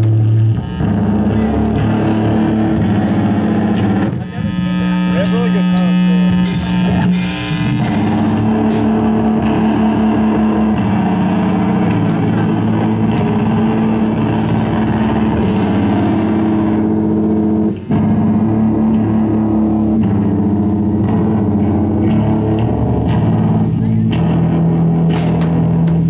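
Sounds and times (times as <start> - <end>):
drum kit with cymbal crashes: 0.0 - 26.0
electric bass low notes: 0.0 - 26.0.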